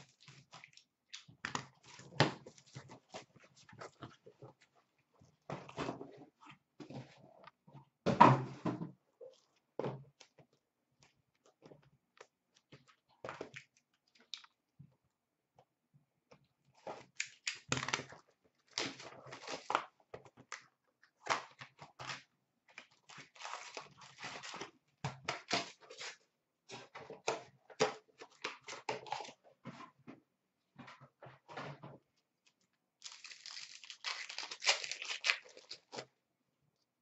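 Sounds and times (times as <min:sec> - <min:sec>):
packaging and foil tearing: 0:33.0 - 0:36.1.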